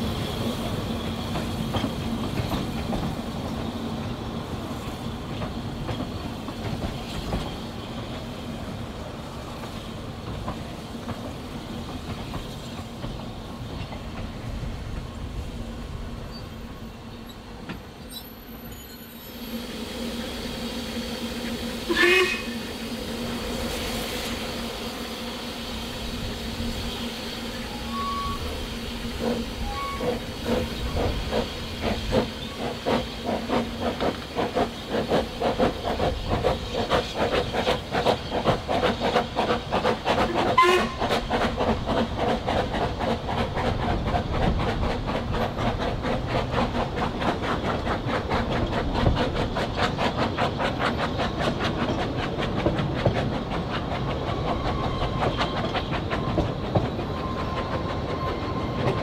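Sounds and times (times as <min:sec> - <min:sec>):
steam hissing: 0:00.0 - 0:59.0
steam locomotive exhaust beats: 0:00.0 - 0:59.0
steam locomotive whistle: 0:21.8 - 0:22.8, 0:26.9 - 0:30.3, 0:40.3 - 0:41.2.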